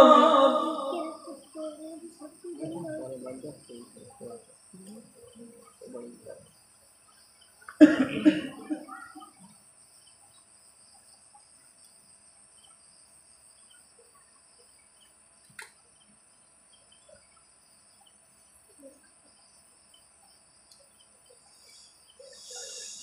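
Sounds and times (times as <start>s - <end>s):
faint high-pitched hiss: 0.0s - 23.0s
person coughing: 7.8s - 8.8s.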